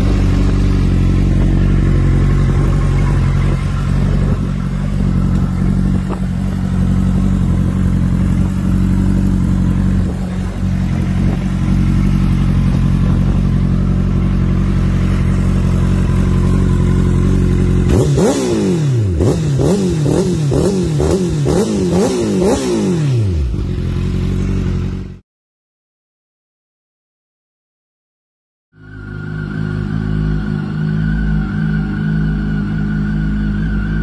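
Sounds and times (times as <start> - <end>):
motorcycle engine idling: 0.0 - 22.1, 23.3 - 25.2
motorcycle engine revs: 0.0 - 25.2.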